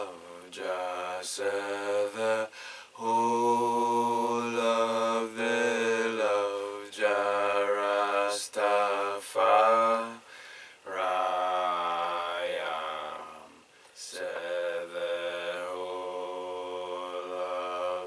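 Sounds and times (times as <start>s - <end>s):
man chanting a prayer: 0.0s - 10.2s, 10.8s - 18.0s.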